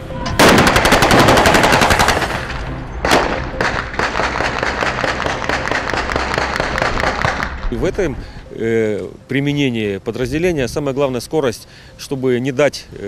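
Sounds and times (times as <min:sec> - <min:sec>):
automatic gunfire: 0:00.4 - 0:02.4.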